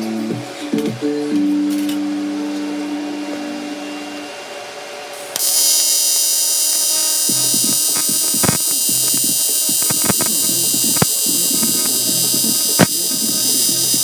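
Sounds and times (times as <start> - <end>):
welding arc buzzing and hissing: 5.1 - 14.0
welding arc crackle: 5.4 - 14.0.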